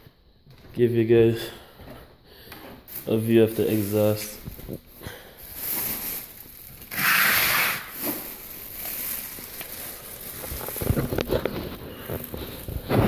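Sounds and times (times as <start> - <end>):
burst of hiss: 6.9 - 8.0.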